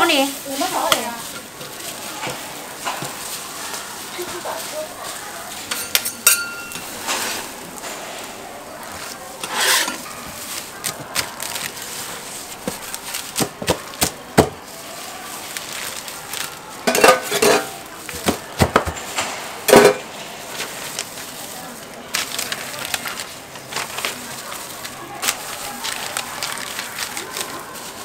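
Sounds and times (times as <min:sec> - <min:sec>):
metal spatulas scraping on griddle: 0:05.5 - 0:08.2, 0:08.9 - 0:11.0, 0:16.8 - 0:17.9, 0:19.0 - 0:20.0.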